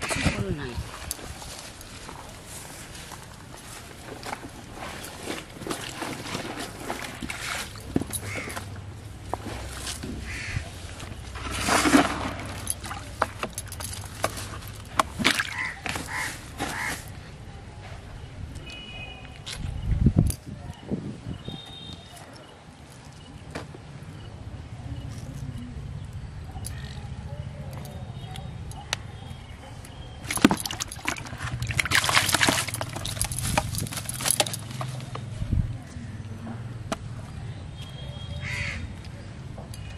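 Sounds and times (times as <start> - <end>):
rustling of wet weeds: 0.0 - 18.2, 30.2 - 36.3
fish splashing in water: 15.2 - 16.9, 30.3 - 33.2.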